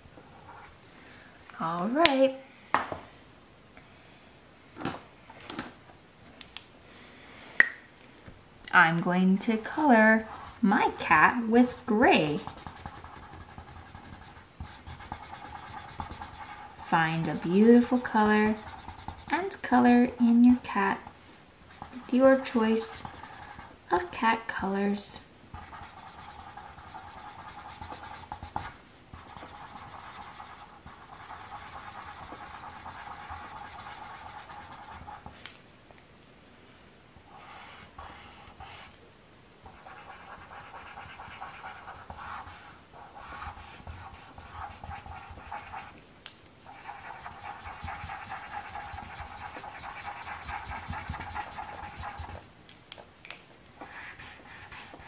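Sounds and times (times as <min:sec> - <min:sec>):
marker scratching on paper: 0:09.8 - 0:19.4, 0:21.7 - 0:24.2, 0:25.5 - 0:35.4, 0:37.3 - 0:39.0, 0:39.6 - 0:46.0, 0:46.6 - 0:52.4, 0:53.8 - 0:55.0.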